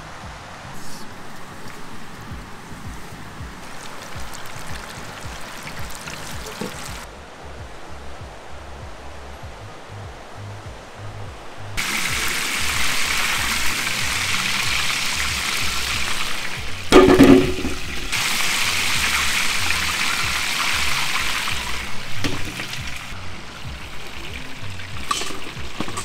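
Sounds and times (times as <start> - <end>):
loud steady hiss: 0.0 - 26.0
low clatter: 13.4 - 18.2.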